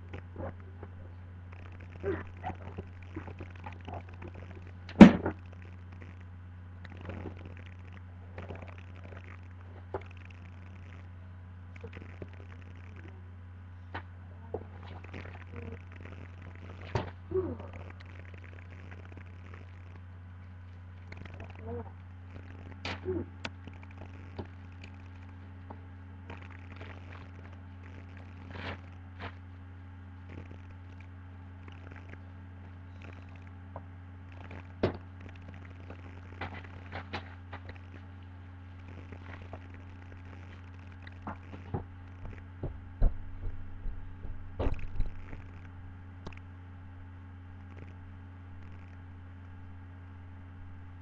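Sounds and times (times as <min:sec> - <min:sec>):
steady low hum: 0:00.0 - 0:51.0
knocks and thumps: 0:41.3 - 0:45.3.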